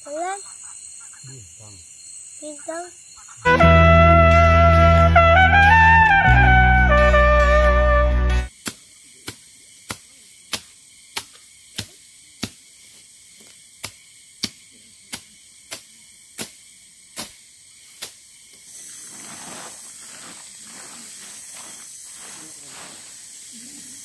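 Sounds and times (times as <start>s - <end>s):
plastic tarpaulin rustling: 19.0s - 23.2s.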